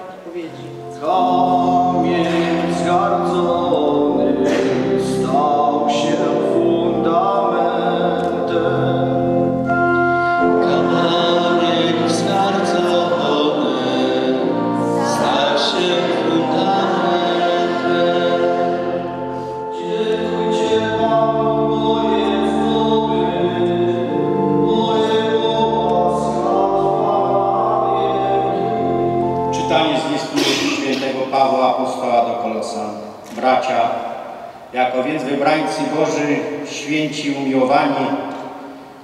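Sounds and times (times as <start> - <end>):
sustained accompaniment: 0.0 - 39.0
choir singing a psalm: 0.8 - 30.6.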